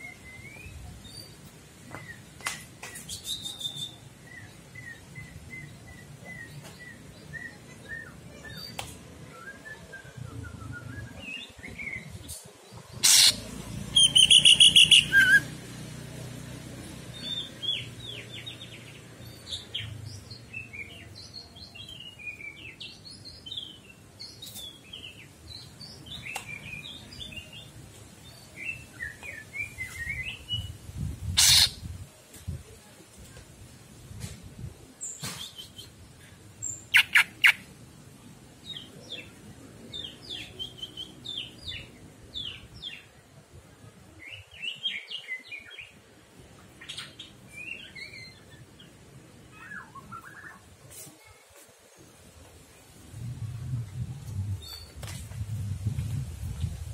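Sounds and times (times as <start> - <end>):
bird chirping and twittering: 10.6 - 15.6, 17.0 - 31.9, 35.0 - 37.7, 38.6 - 43.1, 46.7 - 51.4, 53.7 - 55.1
loud fast bird trill: 13.0 - 15.4, 31.4 - 31.8.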